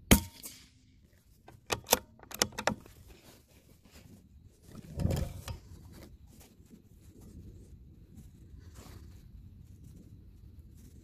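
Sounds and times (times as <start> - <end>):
rifle bolt clicking: 1.5 - 2.8.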